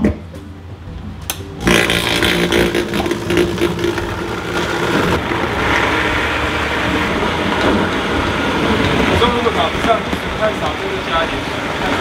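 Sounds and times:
blender motor chopping: 1.6s - 6.2s.

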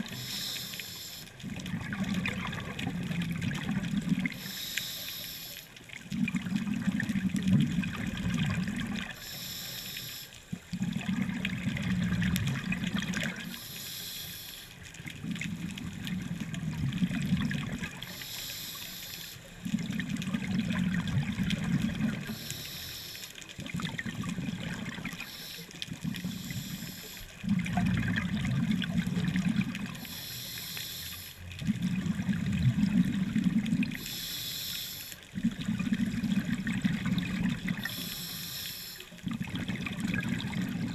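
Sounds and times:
regulator hiss on inhale: 0.0s - 1.4s, 4.3s - 5.7s, 9.1s - 10.6s, 13.3s - 14.8s, 18.0s - 19.6s, 22.1s - 23.5s, 24.9s - 27.4s, 29.9s - 31.4s, 33.9s - 35.2s, 37.6s - 39.2s
exhaled bubbles gushing: 1.4s - 4.5s, 5.9s - 9.2s, 10.5s - 13.6s, 15.0s - 18.2s, 19.6s - 22.5s, 23.6s - 30.2s, 31.4s - 34.1s, 35.2s - 38.2s, 39.1s - 40.9s.

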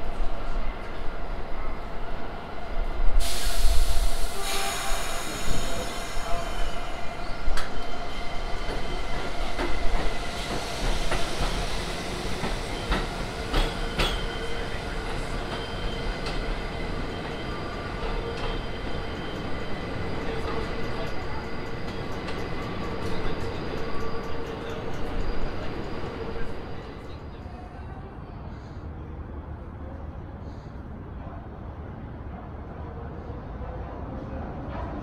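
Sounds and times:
air hiss: 3.1s - 7.1s
train wheel squeal: 3.2s - 27.4s.

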